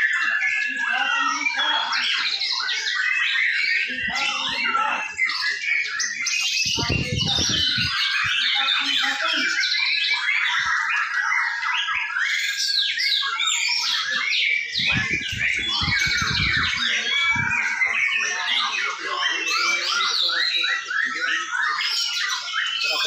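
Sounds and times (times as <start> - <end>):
caged birds singing: 0.0 - 23.0
low muffled sounds: 14.8 - 17.9.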